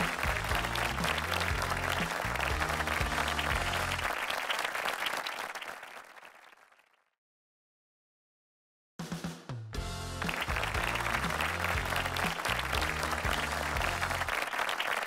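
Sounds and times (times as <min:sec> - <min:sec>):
theme music with bass line: 0:00.0 - 0:04.1, 0:09.5 - 0:14.4
audience applauding: 0:00.0 - 0:06.9, 0:10.2 - 0:15.0.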